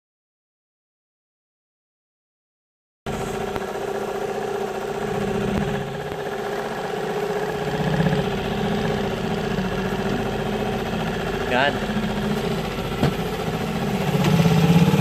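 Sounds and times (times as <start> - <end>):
small boat engine idling: 3.1 - 15.0.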